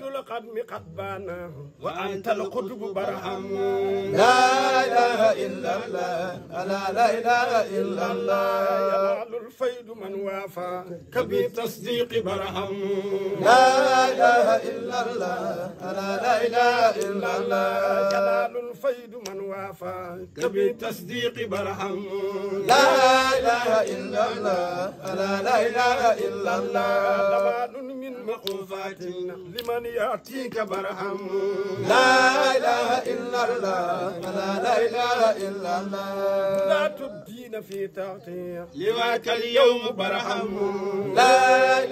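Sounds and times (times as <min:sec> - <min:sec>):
man chanting: 0:00.0 - 0:41.9.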